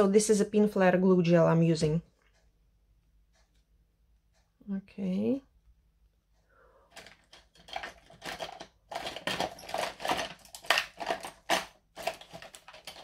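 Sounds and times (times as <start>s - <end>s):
craft tools clicking and clattering: 6.9s - 13.0s.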